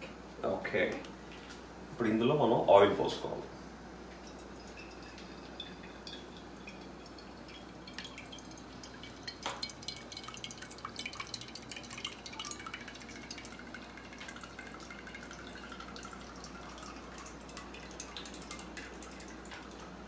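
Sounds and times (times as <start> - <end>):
oil dripping and ticking: 4.2 - 19.9.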